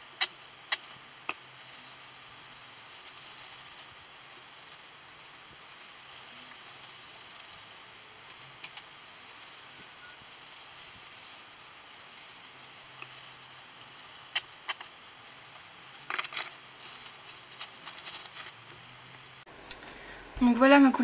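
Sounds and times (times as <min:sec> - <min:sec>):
hands rubbing wet hair: 0:00.3 - 0:18.7.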